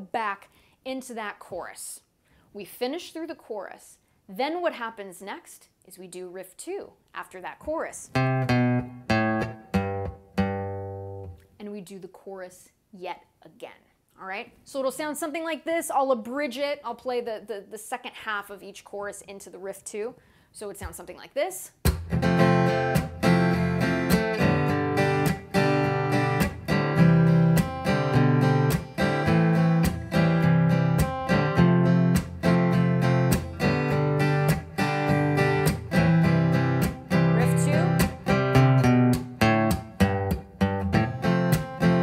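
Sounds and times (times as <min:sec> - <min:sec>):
acoustic guitar strumming: 0:08.1 - 0:11.4, 0:21.9 - 0:42.0.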